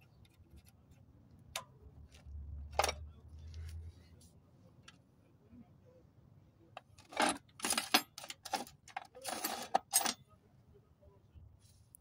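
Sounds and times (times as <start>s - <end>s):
metal parts clinking and rattling: 6.8s - 10.2s.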